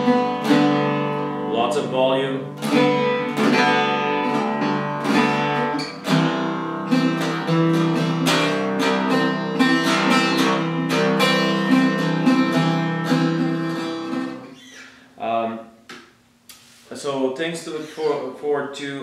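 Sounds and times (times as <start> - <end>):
mandocello picked notes and chords: 0.0 - 14.5.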